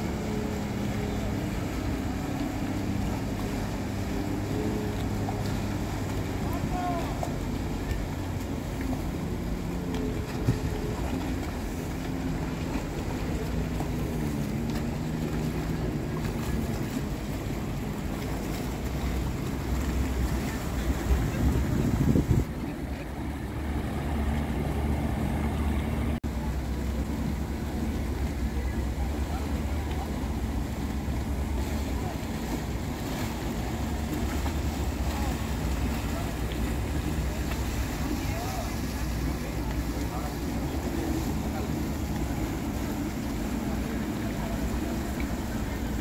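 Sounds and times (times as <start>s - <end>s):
motorboat engines running: 0.0s - 46.0s
wind on microphone: 19.8s - 26.2s
wind noise on microphone: 20.4s - 22.9s.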